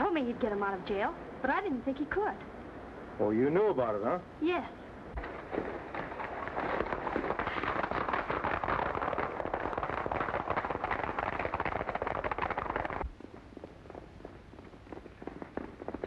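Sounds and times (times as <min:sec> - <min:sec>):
horses galloping: 0:05.2 - 0:16.0.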